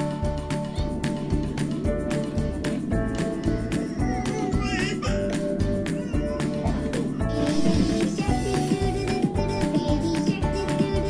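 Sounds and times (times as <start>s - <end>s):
dance music with steady beat: 5.4s - 11.0s.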